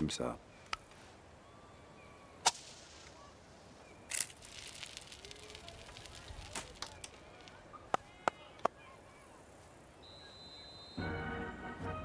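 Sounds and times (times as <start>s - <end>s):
pine cone crackling as it burns: 2.4s - 3.4s, 4.0s - 7.8s
pine cone igniting burst: 2.4s - 3.4s, 4.1s - 7.6s.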